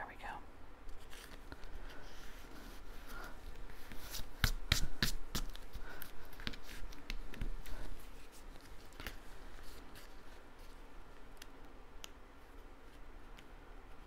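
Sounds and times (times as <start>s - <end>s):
paper taps and rustles: 3.5s - 14.0s.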